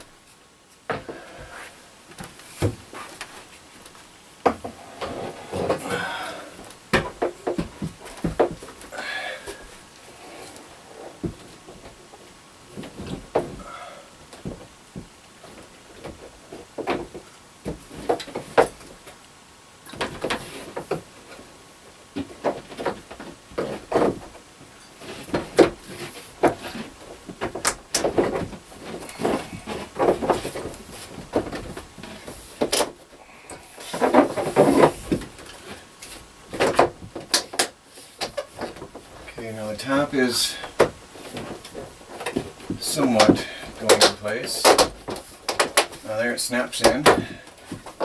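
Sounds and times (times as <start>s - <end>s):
plastic panels knocking and rattling: 6.9s - 8.9s, 22.1s - 24.4s, 25.0s - 33.1s, 33.8s - 48.0s.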